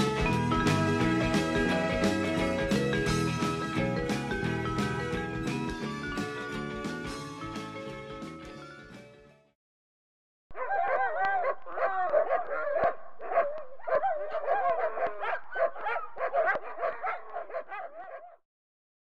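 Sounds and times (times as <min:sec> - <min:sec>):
dog barking and whining: 0:10.6 - 0:18.4.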